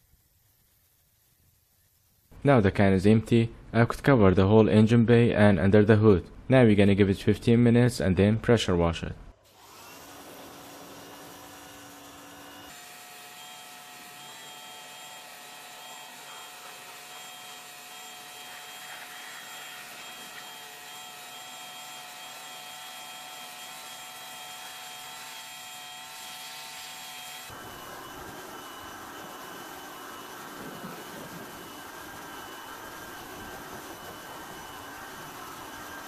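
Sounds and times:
pump whine: 9.4s - 36.0s
pressure washer spray hissing: 16.0s - 20.8s.

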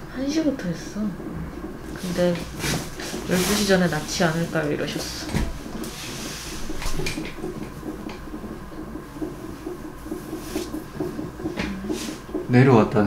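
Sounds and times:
heart monitor heartbeat pulse: 0.0s - 13.0s.

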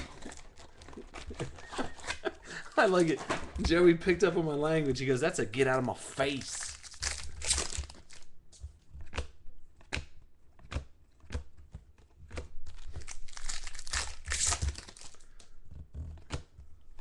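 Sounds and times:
plastic crinkling: 0.0s - 8.4s, 12.6s - 15.4s.

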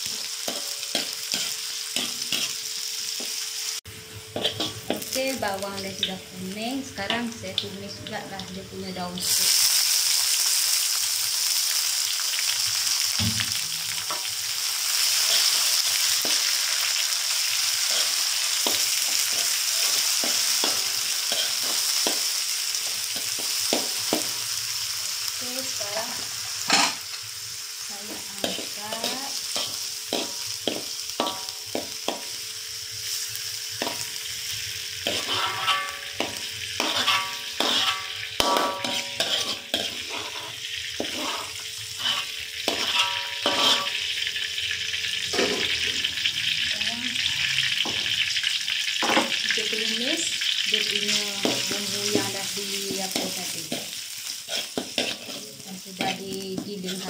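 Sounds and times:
metal spoon scraping a pan: 0.0s - 3.3s, 4.4s - 5.2s, 15.0s - 16.6s, 17.8s - 24.3s, 26.6s - 27.2s, 28.1s - 32.3s, 35.0s - 44.1s, 51.0s - 57.0s
oil sizzling in a wok: 0.0s - 57.0s.

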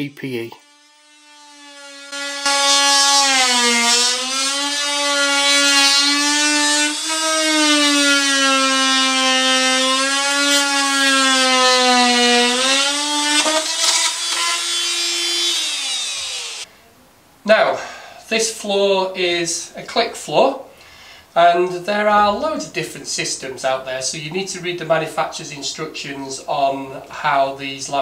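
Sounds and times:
oscillating multi-tool cutting wood: 0.6s - 16.7s.

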